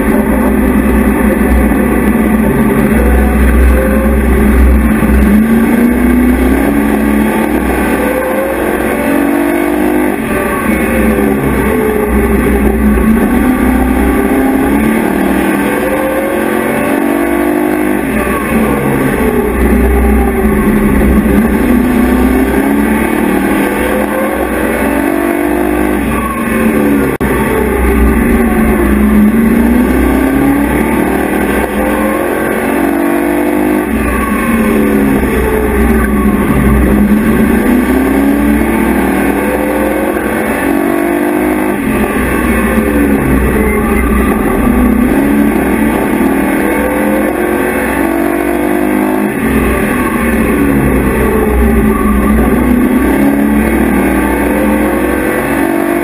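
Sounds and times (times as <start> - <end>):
truck engine revving: 0.0 - 56.0.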